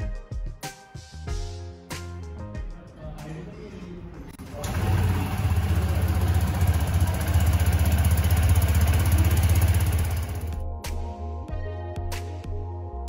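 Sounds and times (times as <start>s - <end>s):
scooter engine starting and idling: 4.4s - 10.6s.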